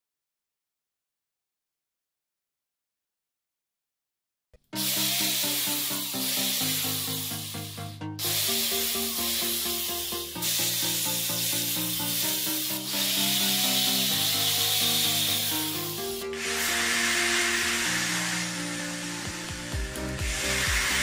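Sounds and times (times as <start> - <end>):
background music sustained notes: 4.7 - 21.0
bright even hiss: 4.8 - 21.0.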